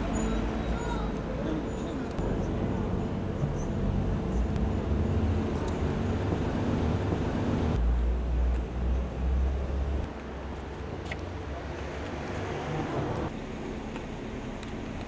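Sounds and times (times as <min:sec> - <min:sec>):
low rumble of traffic: 0:00.0 - 0:15.0.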